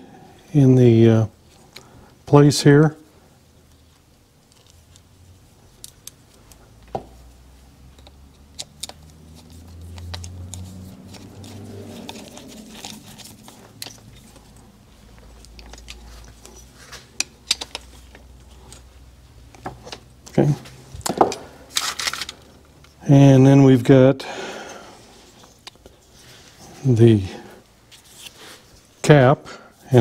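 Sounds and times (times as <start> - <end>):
small metal clicks and taps: 7.9 - 9.1.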